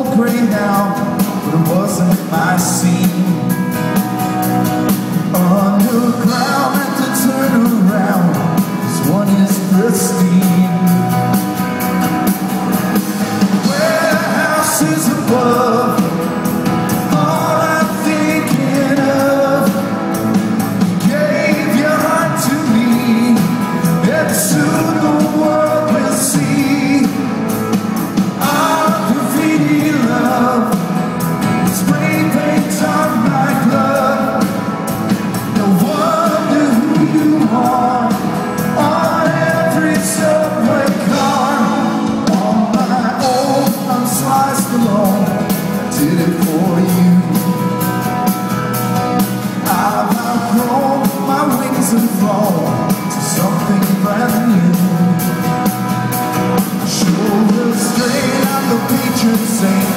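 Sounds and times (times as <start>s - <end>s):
lead vocal singing: 0.0s - 4.0s, 4.9s - 47.8s, 49.3s - 55.7s, 56.4s - 59.9s
live pop-rock band playing: 0.0s - 59.9s.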